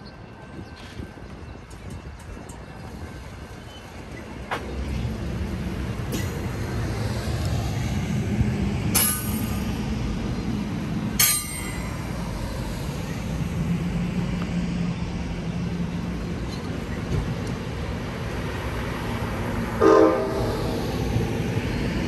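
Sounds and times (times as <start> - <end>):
train wheels rumbling on rails: 0.0 - 22.0
sharp ringing clanks: 9.0 - 9.6, 11.2 - 12.1.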